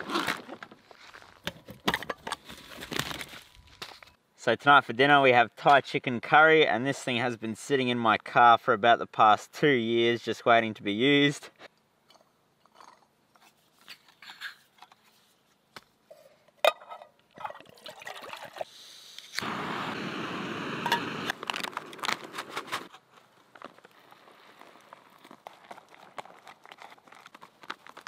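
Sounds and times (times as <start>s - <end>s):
gas burner hissing: 18.9s - 21.4s
foil pouch crinkling: 21.3s - 28.0s.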